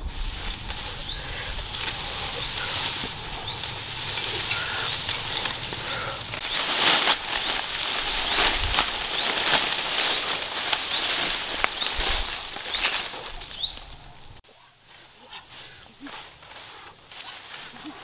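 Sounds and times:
dry grass and brush rustling: 0.0s - 18.0s.

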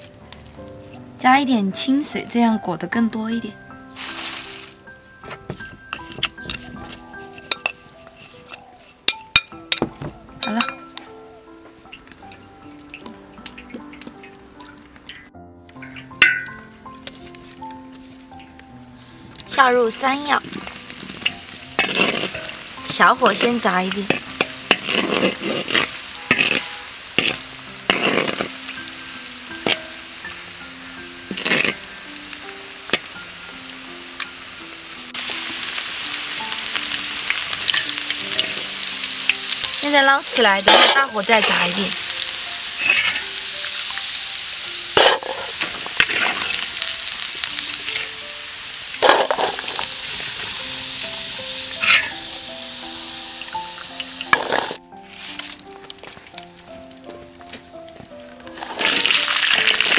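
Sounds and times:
food deep-frying in oil: 0.0s - 59.9s
metal spatula scraping a wok: 4.0s - 8.6s, 20.4s - 28.6s, 29.6s - 30.0s, 31.2s - 31.9s, 37.7s - 38.7s, 40.6s - 41.8s, 42.7s - 43.5s, 44.9s - 46.9s, 47.7s - 48.3s, 49.0s - 50.7s, 51.7s - 52.3s
ladle scraping: 20.4s - 28.6s.

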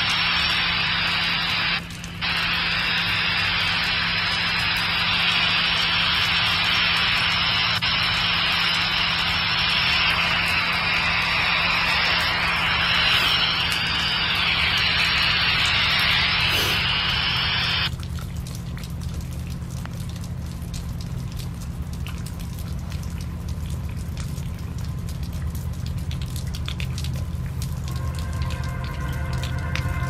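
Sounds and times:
rain falling: 0.0s - 30.0s
raindrops ticking: 0.0s - 30.0s
loud rushing hiss: 4.6s - 17.9s
low rumble: 20.0s - 30.0s
chord of steady tones: 27.8s - 30.0s.

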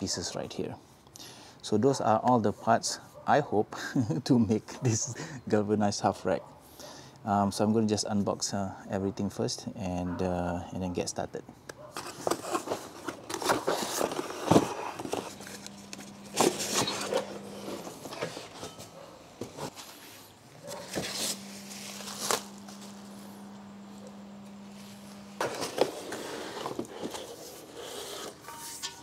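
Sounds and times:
cardboard and plastic rustling: 11.8s - 28.6s
low steady hum: 13.4s - 27.8s
steel parts knocking and scraping: 28.2s - 29.0s.

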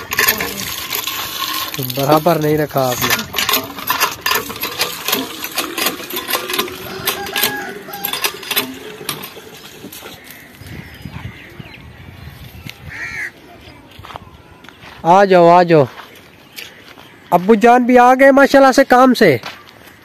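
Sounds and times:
metal pots and utensils clinking: 0.0s - 10.5s.

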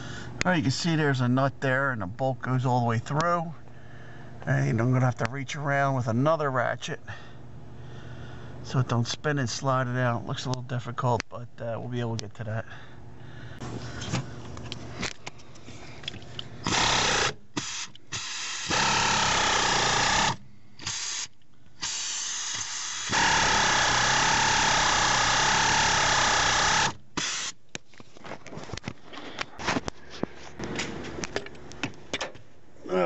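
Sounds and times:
power tool motor running: 16.6s - 27.6s
tool handling clicks and knocks: 27.7s - 32.5s.

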